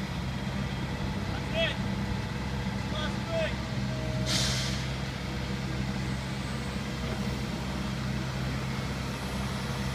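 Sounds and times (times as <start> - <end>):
diesel engine humming: 0.0 - 9.9
brief hiss: 4.2 - 4.9.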